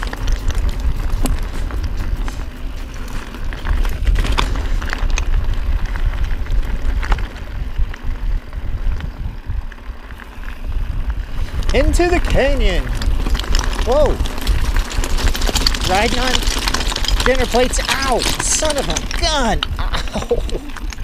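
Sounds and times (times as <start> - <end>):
bike clicks and rattles: 0.0 - 21.0
tyres crunching over stones: 0.0 - 21.0
wind buffeting microphone: 0.0 - 21.0.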